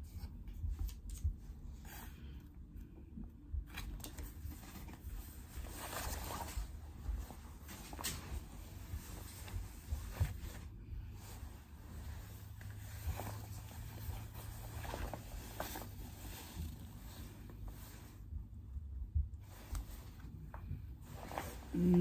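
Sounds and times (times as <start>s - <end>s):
fabric rustling: 4.0s - 18.4s, 19.4s - 22.0s.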